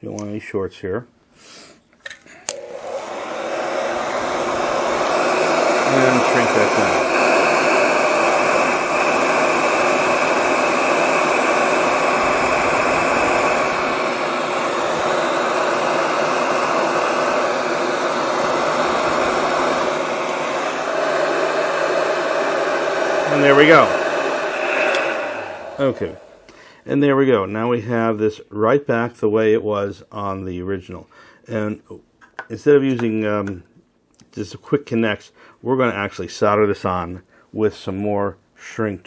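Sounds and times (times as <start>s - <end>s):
heat gun blowing air: 2.3s - 26.7s.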